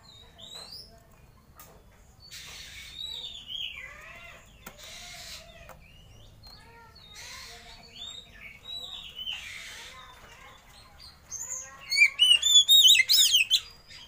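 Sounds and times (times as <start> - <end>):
bird singing whistled notes: 11.8 - 14.0.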